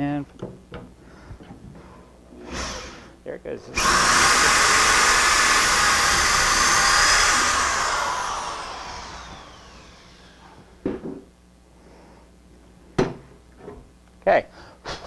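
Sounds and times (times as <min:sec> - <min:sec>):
drill whirring and winding down: 0:02.4 - 0:03.1, 0:03.7 - 0:10.6.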